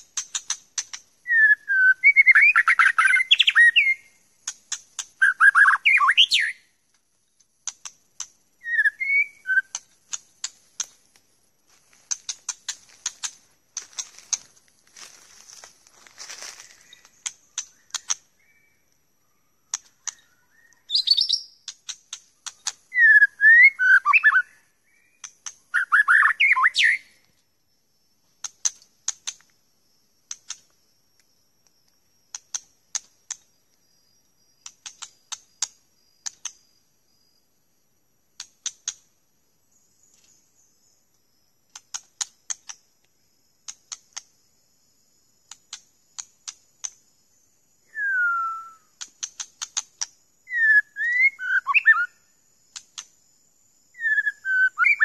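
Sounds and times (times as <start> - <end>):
bird clicking calls: 0.0 - 1.1, 2.0 - 6.5, 7.6 - 11.3, 12.1 - 14.5, 16.6 - 19.0, 19.7 - 24.5, 25.1 - 27.3, 28.4 - 29.6, 30.2 - 33.8, 34.6 - 36.6, 38.4 - 39.1, 41.7 - 44.4, 45.4 - 47.1, 47.9 - 52.1, 52.7 - 53.2
bird whistled song: 0.0 - 6.8, 8.6 - 9.9, 16.6 - 27.2, 47.8 - 53.1, 53.9 - 55.0.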